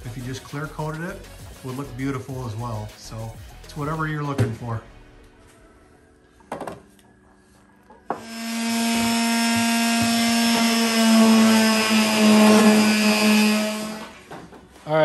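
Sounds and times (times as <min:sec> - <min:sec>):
electric sander motor whine: 0:08.1 - 0:14.3
sander pad scuffing wood: 0:08.2 - 0:14.8.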